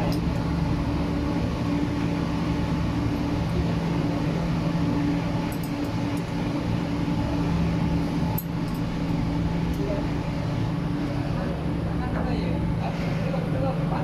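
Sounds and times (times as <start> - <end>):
low steady hum tones: 0.0 - 14.0
workshop machinery drone: 0.0 - 14.0.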